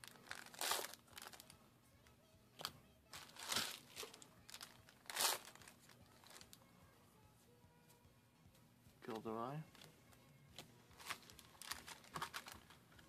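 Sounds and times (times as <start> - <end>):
foil pack crinkling and tearing: 0.0 - 1.5, 3.2 - 6.5, 11.0 - 12.8.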